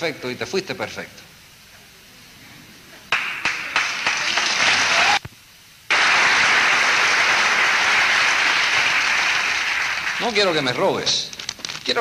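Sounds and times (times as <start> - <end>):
audience applauding: 3.1 - 5.2, 5.9 - 11.0.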